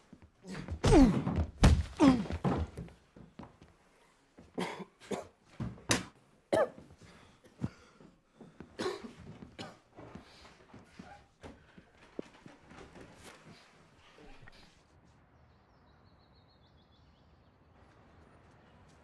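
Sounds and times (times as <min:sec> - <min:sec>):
dull thuds: 0:00.6 - 0:03.0
boy coughing and gasping: 0:04.6 - 0:05.4, 0:06.5 - 0:06.9, 0:08.8 - 0:09.9.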